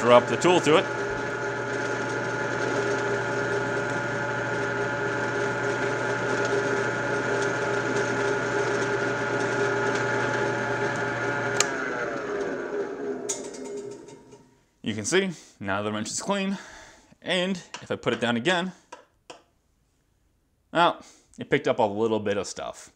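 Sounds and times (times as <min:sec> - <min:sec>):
drill press motor humming: 0:00.0 - 0:14.5.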